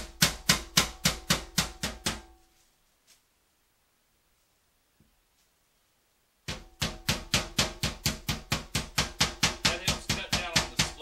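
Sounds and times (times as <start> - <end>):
meat mallet pounding: 0.0 - 2.4, 6.5 - 11.0.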